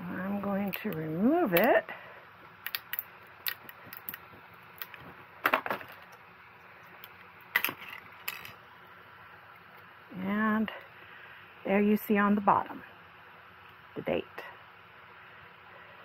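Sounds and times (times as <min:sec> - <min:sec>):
plastic clatter: 0:04.8 - 0:06.2.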